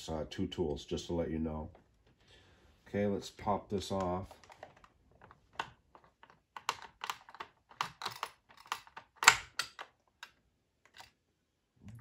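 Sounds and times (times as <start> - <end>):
plastic clicking and clacking: 3.8 - 11.1.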